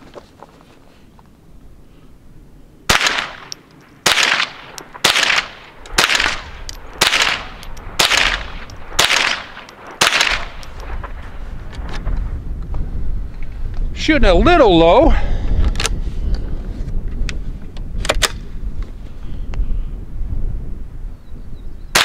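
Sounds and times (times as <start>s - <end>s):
rifle shots echoing: 2.9s - 11.2s.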